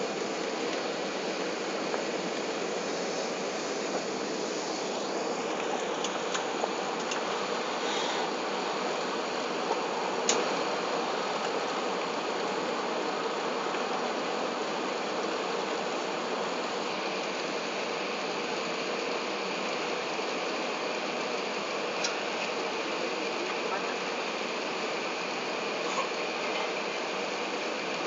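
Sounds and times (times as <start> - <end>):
airplane cabin engine noise: 0.0 - 28.0.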